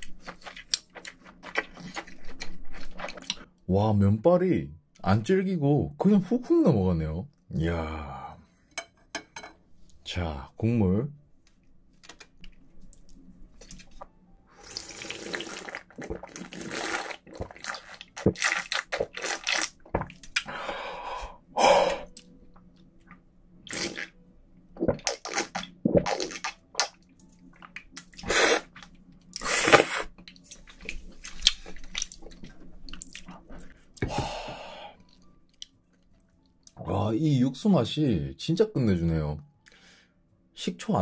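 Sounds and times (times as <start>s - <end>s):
slurping and gulping broth: 14.5s - 20.5s, 29.4s - 30.1s.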